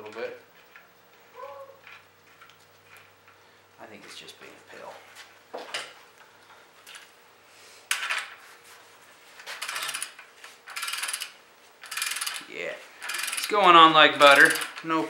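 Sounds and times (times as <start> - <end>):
torque wrench ratchet clicking: 9.6 - 13.6, 14.2 - 14.8.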